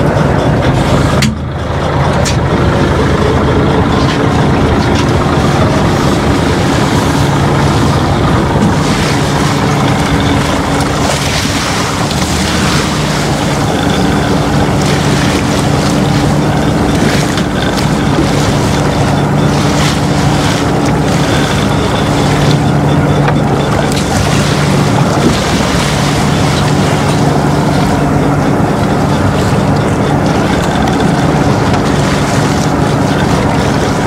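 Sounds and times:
boat engine running: 0:00.0 - 0:34.0
wind and water noise: 0:00.0 - 0:34.0.

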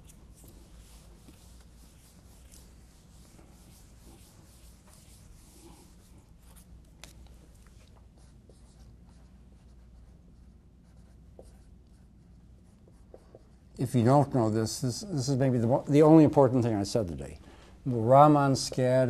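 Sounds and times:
marker writing on a whiteboard: 0:00.0 - 0:07.1, 0:07.7 - 0:13.8
felt eraser wiping a whiteboard: 0:00.0 - 0:13.7.

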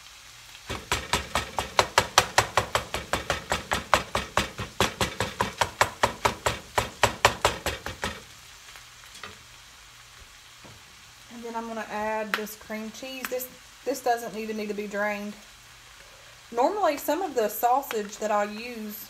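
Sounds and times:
spatula knocking on frying pan: 0:00.7 - 0:08.3.

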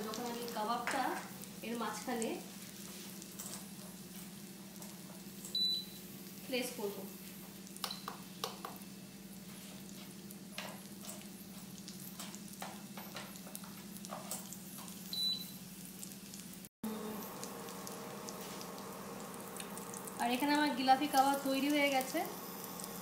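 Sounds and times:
food frying in a pan: 0:00.0 - 0:23.0
steady low hum: 0:16.8 - 0:23.0.

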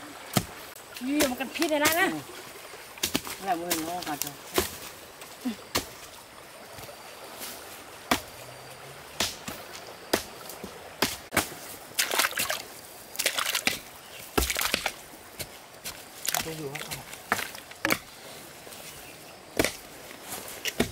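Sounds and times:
blade chopping into muddy bank: 0:09.2 - 0:10.4, 0:11.0 - 0:12.6, 0:13.2 - 0:15.0
sharp wooden knocks: 0:17.2 - 0:18.1.

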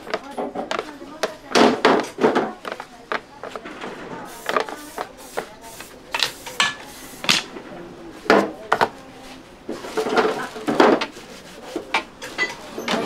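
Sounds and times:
pans and utensils clattering: 0:00.0 - 0:05.0, 0:09.7 - 0:11.2, 0:11.8 - 0:13.0.

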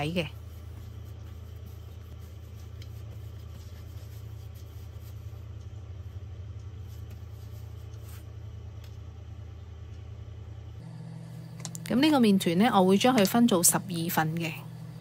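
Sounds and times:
motor humming: 0:10.7 - 0:15.0.

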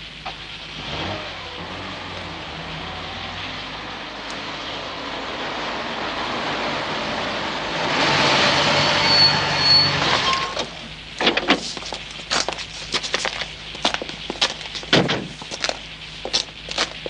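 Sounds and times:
car driving up: 0:00.0 - 0:17.0
brief high squeal: 0:08.7 - 0:10.7.

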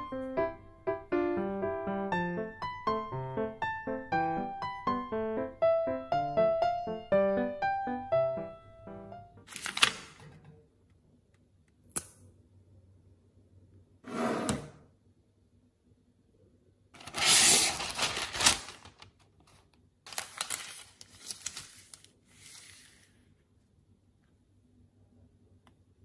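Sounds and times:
paper rustling and crinkling: 0:09.4 - 0:10.3, 0:17.0 - 0:23.3
parchment paper tearing: 0:17.0 - 0:19.1, 0:20.1 - 0:23.2.

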